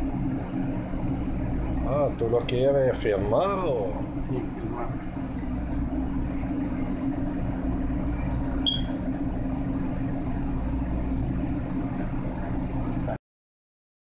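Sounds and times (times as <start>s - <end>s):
low mechanical hum: 0.0s - 13.2s
high chirp: 8.6s - 8.9s.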